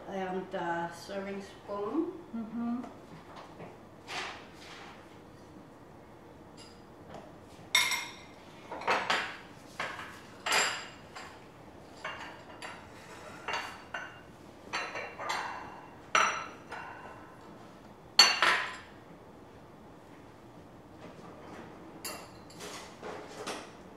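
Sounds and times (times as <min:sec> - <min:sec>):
metal utensils clinking on plates: 0:07.8 - 0:11.4, 0:12.0 - 0:17.1.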